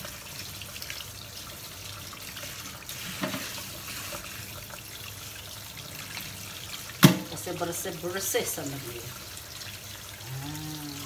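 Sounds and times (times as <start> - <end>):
tap running into sink: 3.0 - 4.2, 6.9 - 7.4.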